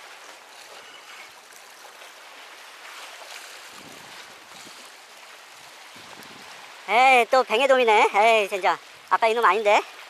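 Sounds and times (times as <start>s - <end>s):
sea water splashing among rocks: 0.0s - 10.0s.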